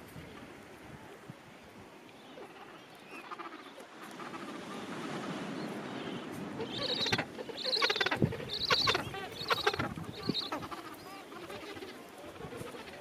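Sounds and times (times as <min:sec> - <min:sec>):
penguin colony calling: 0:06.2 - 0:13.0
penguin braying: 0:06.6 - 0:13.0.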